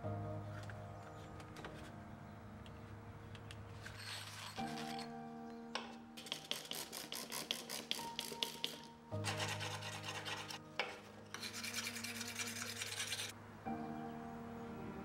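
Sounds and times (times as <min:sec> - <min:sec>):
background music: 0:00.0 - 0:15.0
scraper blade being sharpened: 0:06.2 - 0:10.6, 0:11.3 - 0:13.3.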